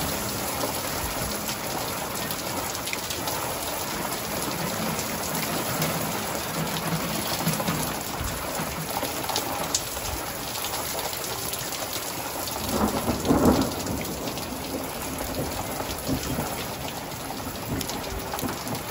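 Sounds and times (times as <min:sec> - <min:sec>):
thunder rumbling: 0:00.0 - 0:10.4, 0:12.5 - 0:18.9
rain falling: 0:00.0 - 0:18.9.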